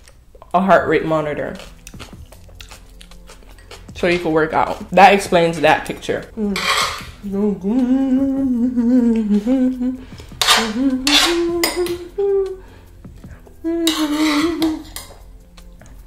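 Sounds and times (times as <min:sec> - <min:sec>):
woman humming: 0:06.3 - 0:15.0
metal spoon scraping a dish: 0:06.4 - 0:07.2, 0:10.2 - 0:12.0, 0:13.8 - 0:15.3.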